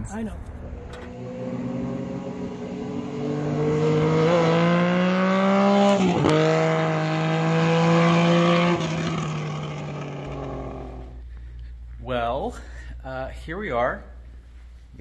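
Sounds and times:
vehicle engine revving: 0.7s - 11.2s.

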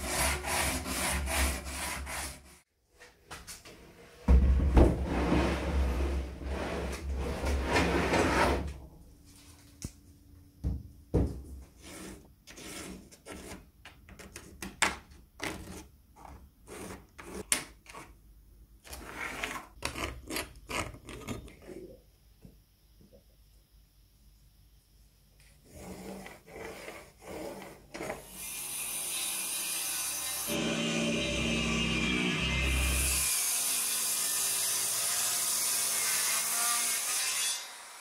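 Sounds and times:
irregular scraping and rubbing strokes: 11.7s - 13.7s, 25.6s - 28.2s.

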